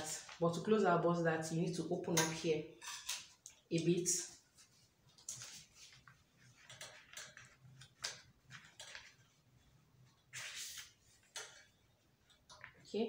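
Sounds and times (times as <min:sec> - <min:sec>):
paper rustling: 0:00.0 - 0:00.8, 0:04.5 - 0:11.8.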